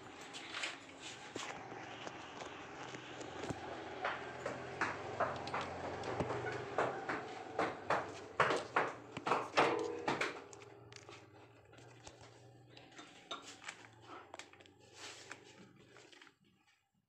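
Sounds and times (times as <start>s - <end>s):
clicks and knocks: 4.5s - 10.7s.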